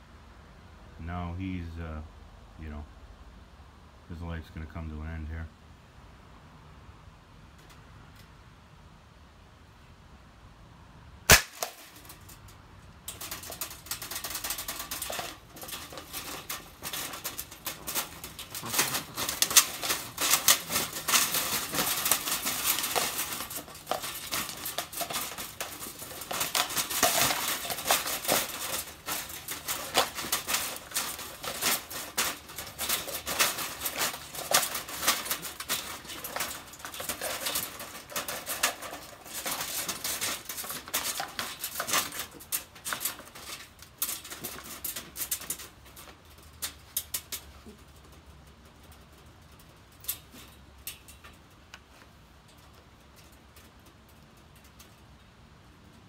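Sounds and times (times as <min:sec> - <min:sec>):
wire cage trap rattling: 0:11.3 - 0:51.5.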